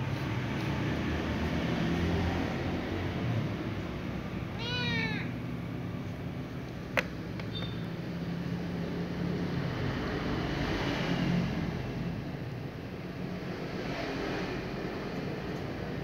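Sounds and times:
cat meowing: 4.5s - 5.4s.

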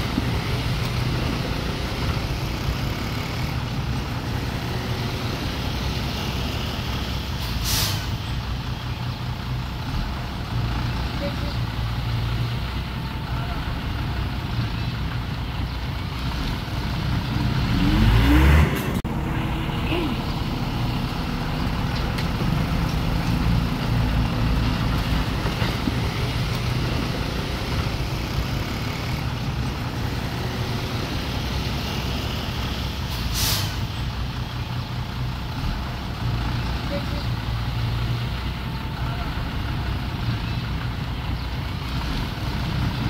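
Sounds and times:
diesel machinery engine revving: 0.0s - 43.0s
short hiss of air: 7.4s - 8.2s, 33.1s - 33.9s.

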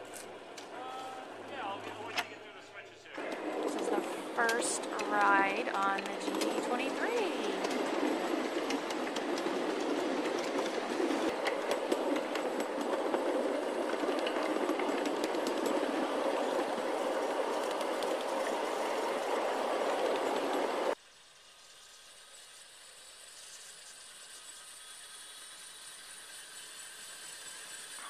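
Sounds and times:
steel wheels rumbling on track: 3.1s - 21.0s.

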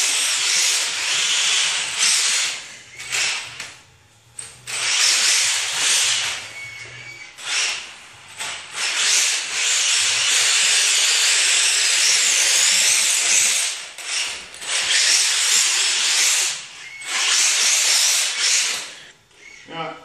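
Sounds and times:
electric motor whine: 4.4s - 19.4s.

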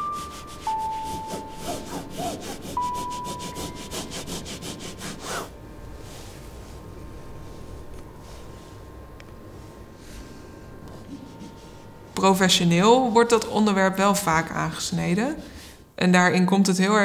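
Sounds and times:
background music notes: 0.0s - 5.4s
drawing tool scratching paper: 0.0s - 5.5s.

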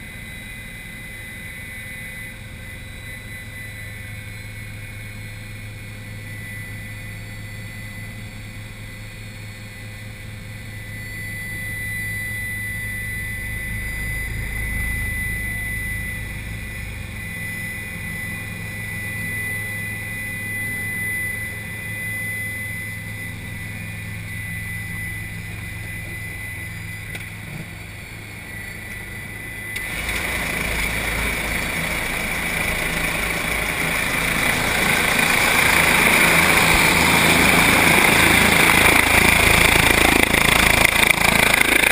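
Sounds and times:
helicopter turbine and rotor idling: 0.0s - 41.9s
thin high whine: 0.0s - 41.9s.

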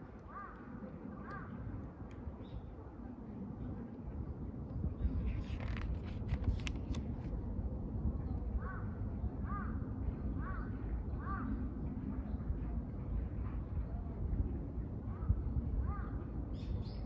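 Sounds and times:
steady low rumble: 0.0s - 16.6s
crow cawing: 0.3s - 0.6s
paper rustling: 5.3s - 7.3s.

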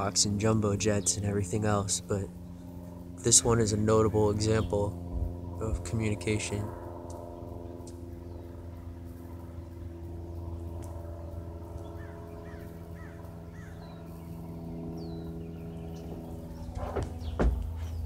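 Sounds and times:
light aircraft engine droning: 0.0s - 18.0s
bird calls: 7.6s - 18.0s.

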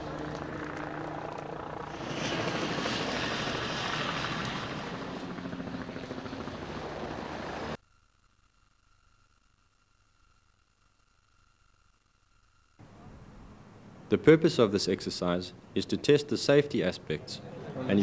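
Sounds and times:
helicopter flying low overhead: 0.0s - 7.8s, 17.1s - 18.0s
faint steady tone: 5.4s - 14.2s.

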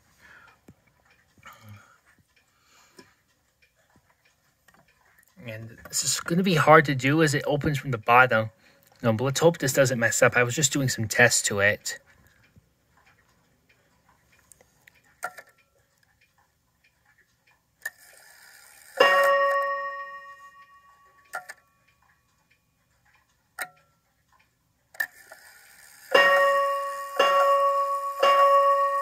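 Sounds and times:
clock mechanism clicks: 0.0s - 29.0s
clock strike train whirring: 17.8s - 21.5s, 25.0s - 29.0s.

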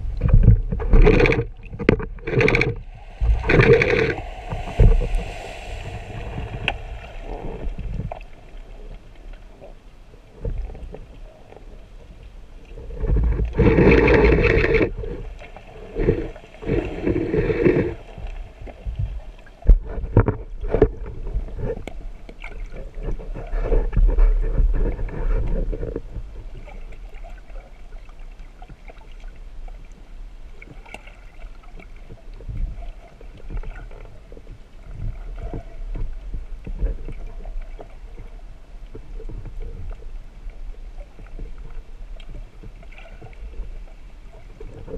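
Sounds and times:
rushing bubbling water: 0.0s - 11.6s, 13.5s - 21.6s
muffled underwater water noise: 0.0s - 44.9s.

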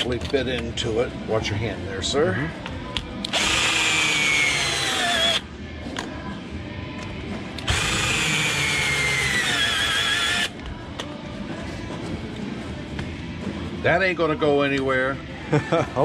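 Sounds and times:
cordless drill whining: 3.3s - 5.4s, 7.7s - 10.5s.

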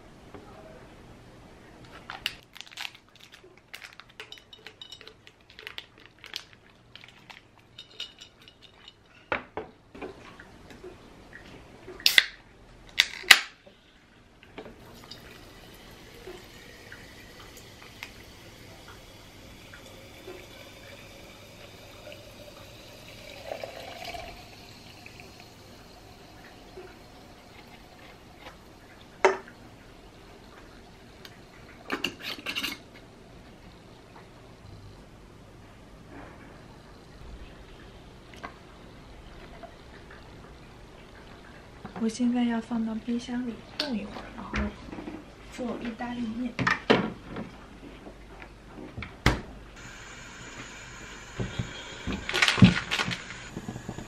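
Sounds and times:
packet rustling: 2.0s - 7.8s, 52.2s - 53.5s
can opening with hiss: 12.0s - 12.4s, 49.8s - 54.0s
soda water pouring and fizzing: 14.8s - 32.1s, 49.8s - 54.0s.

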